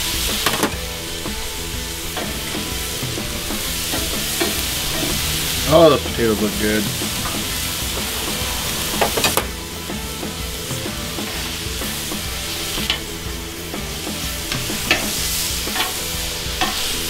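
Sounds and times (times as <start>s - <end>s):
meat sizzling on a griddle: 0.0s - 17.0s
metal tongs clicking: 15.7s - 16.8s.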